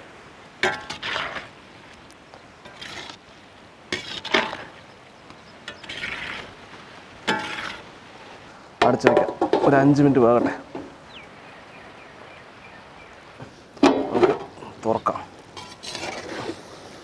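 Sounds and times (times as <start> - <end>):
metal ladle scraping iron pot: 0.6 - 1.5, 2.6 - 3.2, 3.9 - 4.7, 5.6 - 6.5, 7.2 - 7.9, 15.6 - 16.6.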